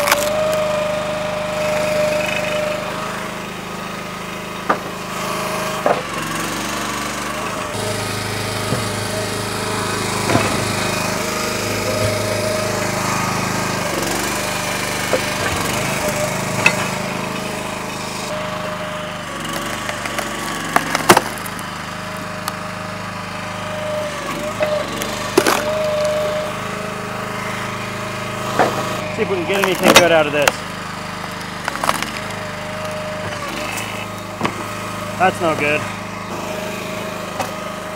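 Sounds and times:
log splitter engine running: 0.0s - 37.9s
wood cracking and knocking: 4.6s - 5.0s, 5.8s - 6.2s, 10.2s - 11.0s, 19.6s - 21.6s, 28.5s - 29.0s, 31.6s - 32.4s.

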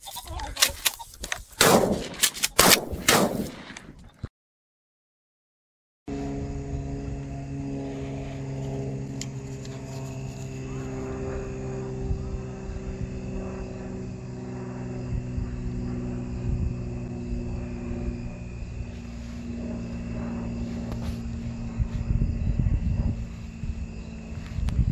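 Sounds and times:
irregular low rumble: 6.1s - 24.9s
mechanical hum: 6.1s - 24.9s.

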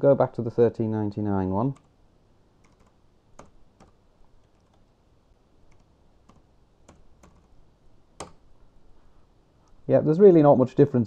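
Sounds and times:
computer keyboard taps: 2.6s - 4.8s, 5.7s - 7.5s, 8.2s - 8.4s.

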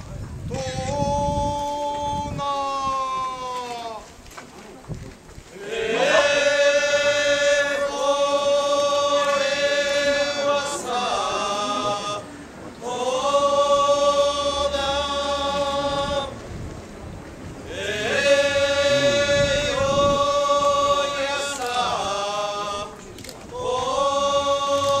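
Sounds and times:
people chanting in unison: 5.5s - 16.5s, 17.6s - 25.0s.

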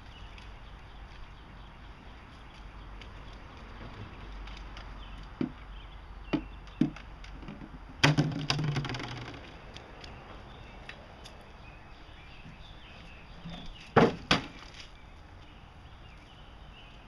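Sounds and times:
plastic jugs knocking on concrete: 5.3s - 5.6s, 6.2s - 9.6s
hollow plastic clatter: 6.3s - 9.6s.

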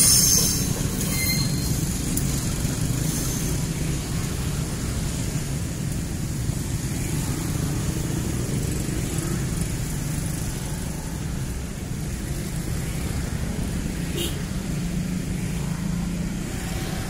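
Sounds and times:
diesel locomotive rumbling: 0.0s - 7.0s, 15.2s - 17.0s.

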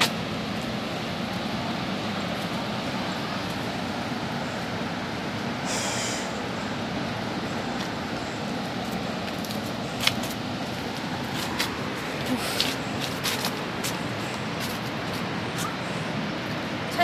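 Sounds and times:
waterfall rushing: 0.0s - 17.0s
short hiss: 5.7s - 6.4s.

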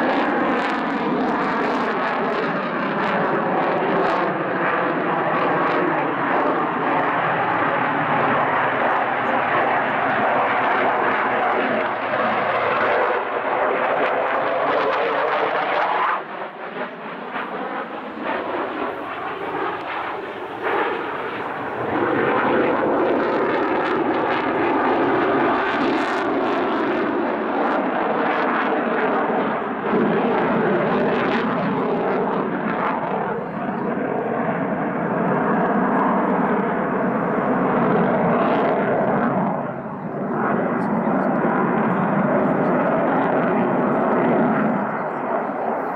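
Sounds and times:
jet fighter roaring overhead: 0.0s - 45.9s.

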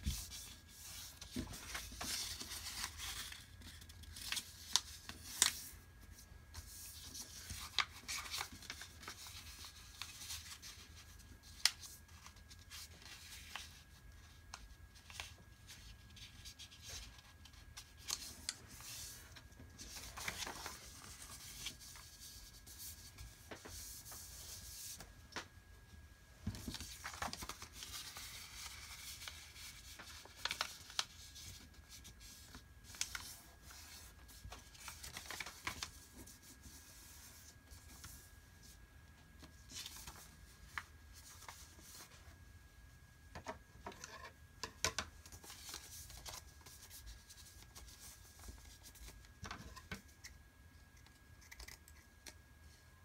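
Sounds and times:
paper rustling and sliding: 0.0s - 5.7s, 15.2s - 25.0s, 26.5s - 38.8s
paper crackling: 0.0s - 14.0s, 15.0s - 22.8s, 26.5s - 38.2s.

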